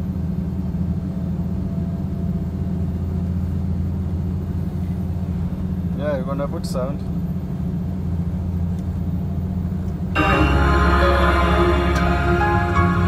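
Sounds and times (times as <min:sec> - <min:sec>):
road noise: 0:00.0 - 0:13.0
truck diesel engine droning: 0:00.0 - 0:13.0.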